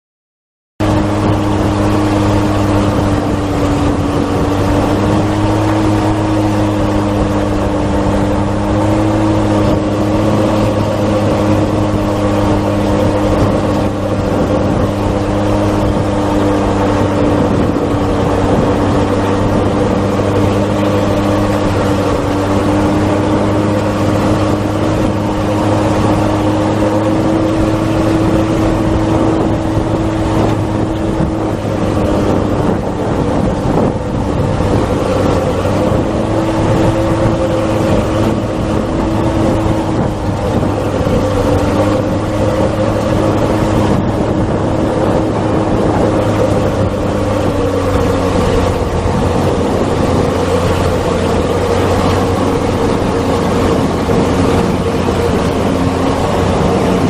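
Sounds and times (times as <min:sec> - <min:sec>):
jet ski engine drone: 0:00.8 - 0:57.0
wake spray rushing: 0:00.8 - 0:57.0.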